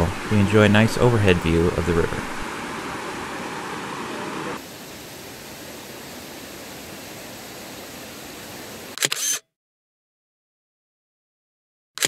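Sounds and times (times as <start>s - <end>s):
rushing river water: 0.0s - 9.0s.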